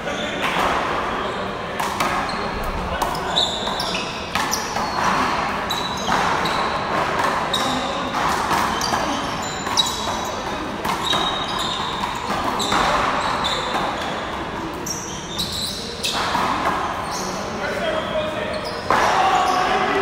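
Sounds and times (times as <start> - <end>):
sneaker squeaks: 0.0 - 20.0
handball hitting wall and floor: 3.0 - 14.7.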